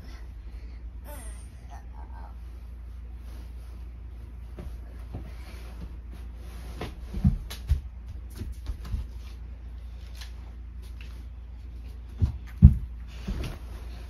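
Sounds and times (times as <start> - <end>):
dull thumps: 12.1 - 13.7.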